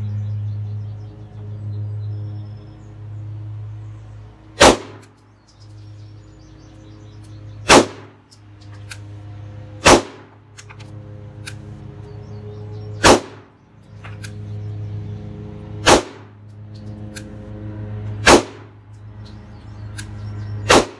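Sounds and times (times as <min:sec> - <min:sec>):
pistol shots: 0:04.6 - 0:05.1, 0:07.6 - 0:08.2, 0:09.8 - 0:10.3, 0:13.0 - 0:13.5, 0:15.8 - 0:16.3, 0:18.2 - 0:18.7, 0:20.6 - 0:20.9.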